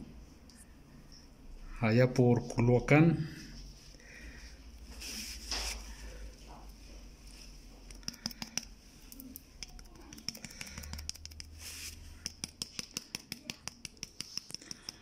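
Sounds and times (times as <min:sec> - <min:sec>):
paint tapping on card: 0:07.9 - 0:15.0.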